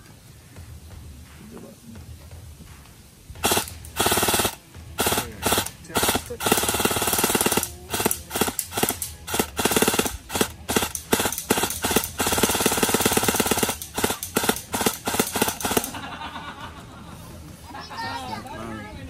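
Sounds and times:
airsoft rifle full-auto bursts: 3.4s - 16.0s.

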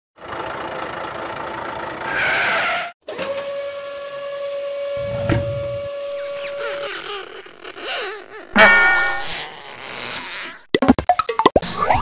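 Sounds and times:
truck engine running: 0.2s - 2.1s
high hydraulic whine: 3.1s - 6.9s.

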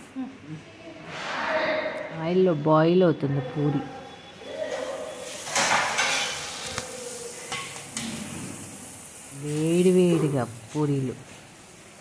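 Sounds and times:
oil sizzling while deep-frying: 4.7s - 12.0s.

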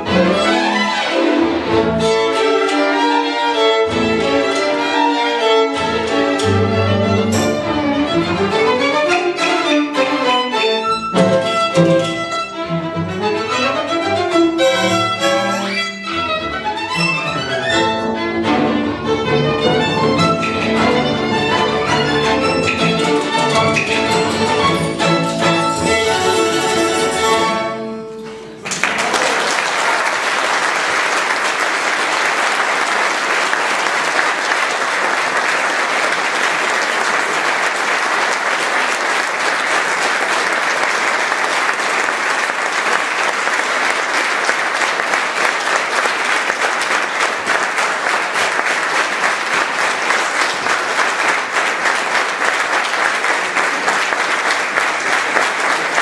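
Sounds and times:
violin and string orchestra: 0.0s - 28.6s
audience applause: 28.6s - 56.0s.

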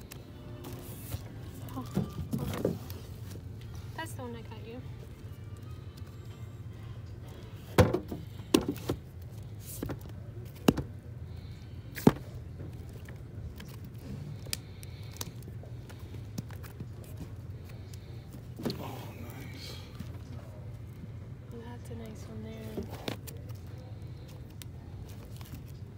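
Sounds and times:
steady low hum: 0.0s - 25.9s.

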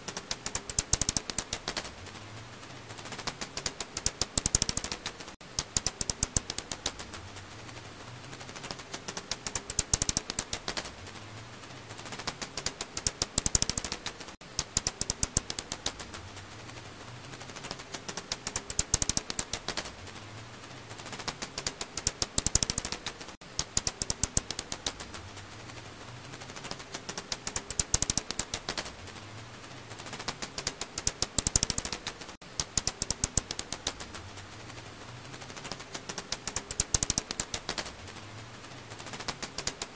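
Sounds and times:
bat echolocation clicks: 0.1s - 1.9s, 3.2s - 7.2s, 8.6s - 11.0s, 12.1s - 16.2s, 17.6s - 20.0s, 21.0s - 25.1s, 26.6s - 28.9s, 30.0s - 34.2s, 35.6s - 38.0s.

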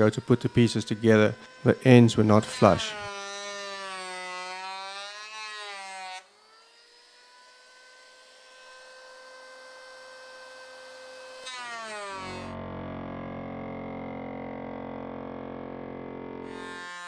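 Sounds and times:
high-pitched motor whine: 0.0s - 3.8s, 7.4s - 17.0s
electric planer cutting wood: 0.0s - 17.0s.

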